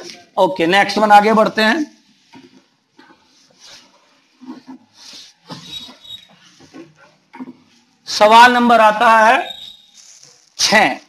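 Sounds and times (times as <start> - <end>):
duster wiping whiteboard: 3.3 - 7.1
faint high squeak: 5.4 - 6.5, 9.3 - 10.4.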